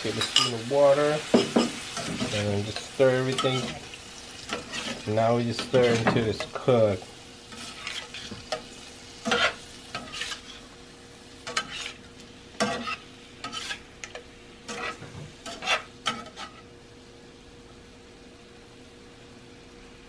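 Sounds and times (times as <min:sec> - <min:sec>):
steady sizzle: 0:00.0 - 0:20.0
metal spatula scraping frying pan: 0:01.6 - 0:06.6, 0:07.5 - 0:10.7, 0:11.4 - 0:13.9, 0:14.6 - 0:16.7.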